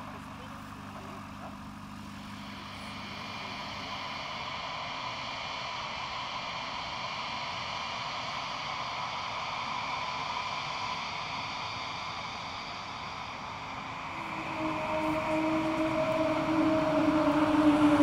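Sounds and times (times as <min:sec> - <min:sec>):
jet engine hiss and whine: 0:00.0 - 0:18.0.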